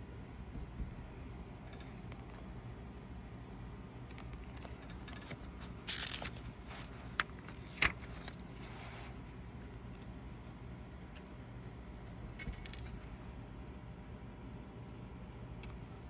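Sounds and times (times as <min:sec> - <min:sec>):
low steady hum: 0:00.0 - 0:16.0
paper rustle: 0:04.1 - 0:09.3.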